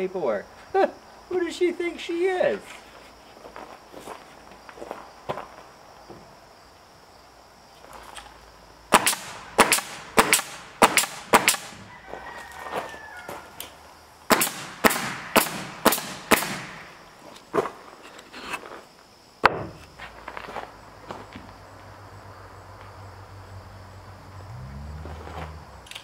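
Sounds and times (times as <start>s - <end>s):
nail gun firing: 8.9s - 11.8s, 14.3s - 16.9s.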